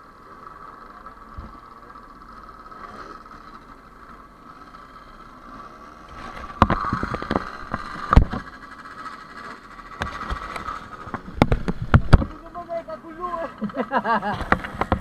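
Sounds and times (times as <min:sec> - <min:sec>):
two-stroke motorcycle engine running: 0:00.0 - 0:15.0
sharp knocks: 0:11.1 - 0:12.3.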